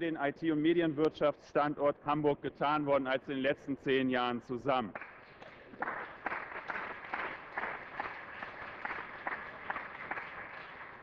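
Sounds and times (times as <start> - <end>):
applause: 4.9 - 11.0.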